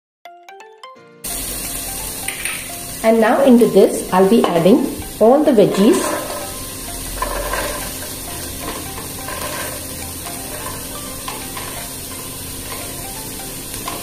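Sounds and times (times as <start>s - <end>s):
oil sizzling: 1.2s - 14.0s
vegetables sliding into hot oil: 5.7s - 14.0s
wooden spatula stirring: 10.4s - 11.9s.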